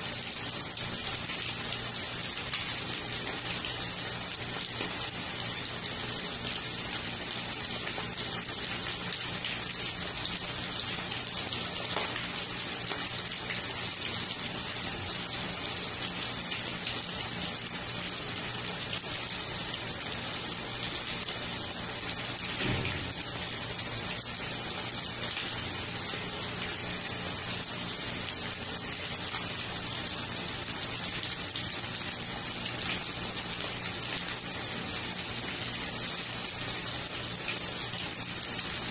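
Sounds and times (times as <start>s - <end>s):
chicken sizzling in oil: 0.0s - 38.9s.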